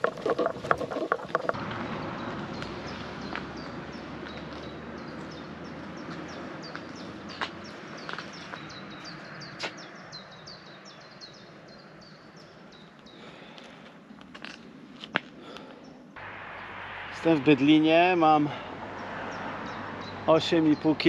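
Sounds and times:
songbirds chirping: 0.0s - 21.0s.

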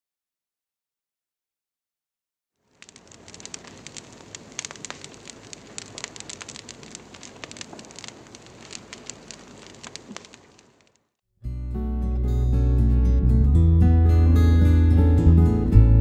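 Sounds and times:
wood fire crackling: 2.6s - 11.1s.

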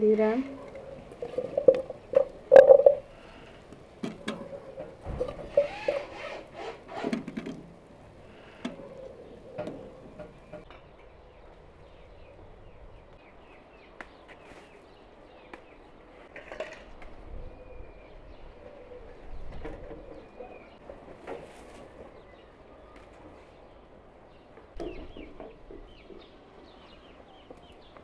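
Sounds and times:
faint birdsong chirps: 8.1s - 16.3s, 17.3s - 28.0s
leaves rustling: 21.2s - 23.6s.

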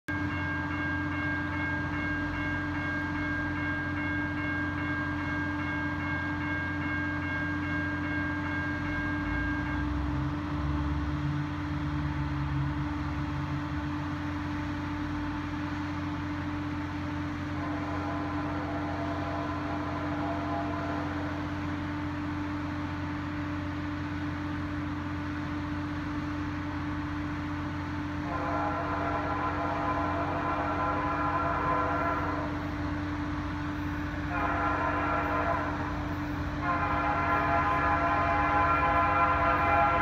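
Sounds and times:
train rumbling: 0.1s - 40.0s
train horn blast: 17.3s - 22.3s, 28.1s - 40.0s.

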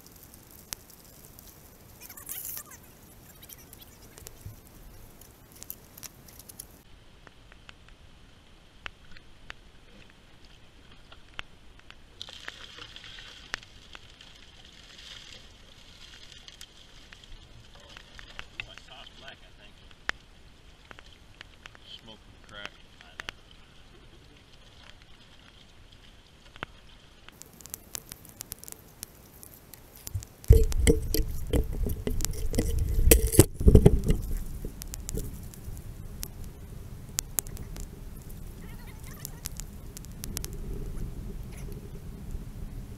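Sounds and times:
creek water washing: 0.0s - 6.8s, 22.9s - 42.4s
water drips and ticks: 0.0s - 6.8s, 8.8s - 42.9s
sharp drips and taps: 30.0s - 35.5s
camera handling knocks and rubbing: 30.5s - 35.3s.

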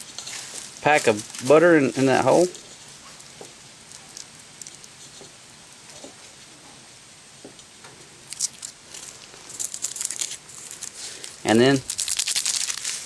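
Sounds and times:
plastic packet crinkle: 8.4s - 13.0s
plastic packet rustling and clicking: 8.4s - 13.0s.

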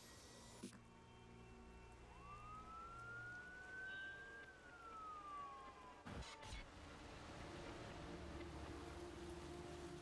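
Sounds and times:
distant siren wailing: 1.0s - 6.7s.

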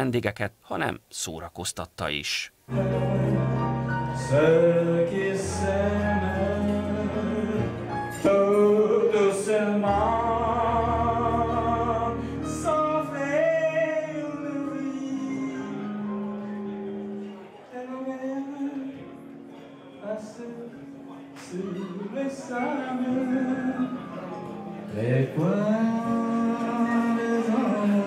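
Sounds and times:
man singing with vibrato: 2.6s - 16.4s, 17.6s - 19.3s, 19.9s - 28.0s
sustained bass notes and chords: 2.7s - 8.2s.

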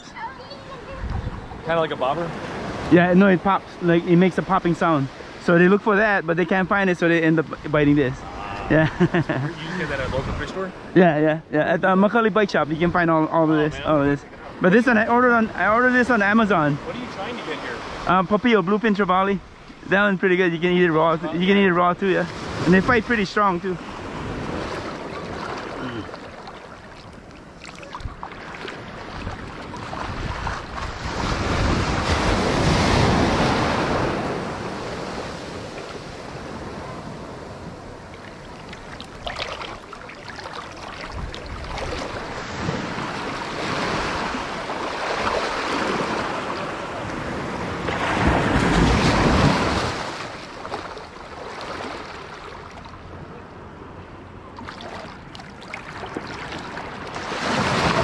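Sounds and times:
waves washing over sand: 0.0s - 11.0s, 11.9s - 58.0s
wind on microphone: 0.9s - 1.7s, 9.9s - 10.6s, 27.8s - 39.6s, 40.9s - 44.6s.

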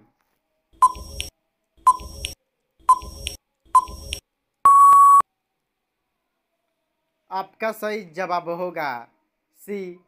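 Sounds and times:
countdown timer ticks: 0.8s - 1.3s, 1.9s - 5.2s.

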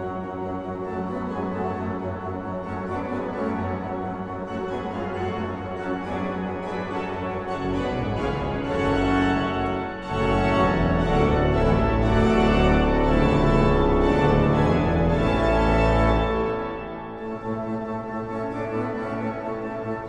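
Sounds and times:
pipe organ playing chords: 0.0s - 20.0s.

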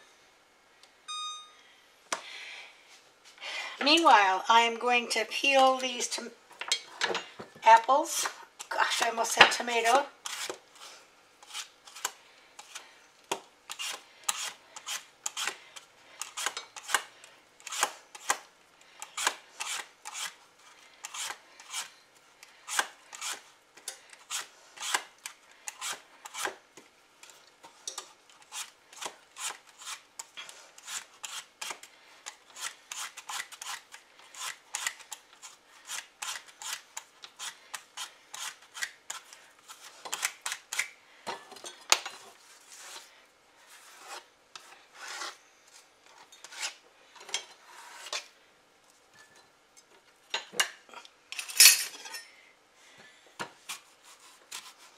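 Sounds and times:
peeler scraping apple skin: 8.0s - 12.9s, 13.7s - 26.6s, 28.3s - 40.9s.

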